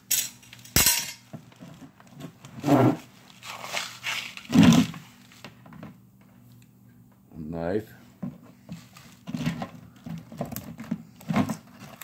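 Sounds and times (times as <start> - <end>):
low steady hum: 0.0 - 12.0
short rough noises: 2.6 - 5.2
soft handling noises: 8.0 - 12.0.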